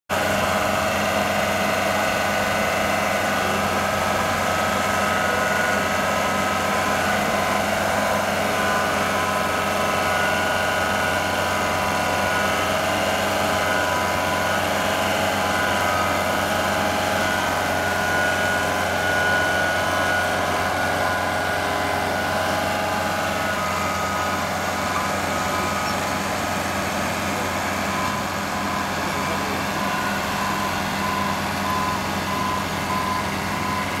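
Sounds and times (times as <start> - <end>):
engine running under load: 0.1 - 34.0.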